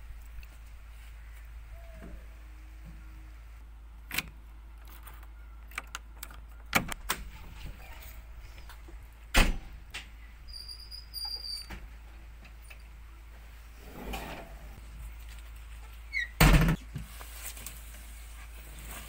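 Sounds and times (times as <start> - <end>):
key turning in lock: 4.1 - 7.0
metal door latch clicks and clunks: 5.7 - 7.3, 9.3 - 10.1.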